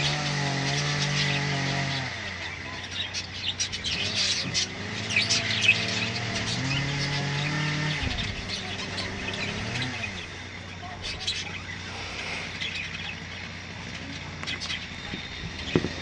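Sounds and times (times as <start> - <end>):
budgerigars chirping and chattering: 0.0 - 16.0
low engine hum: 0.0 - 16.0.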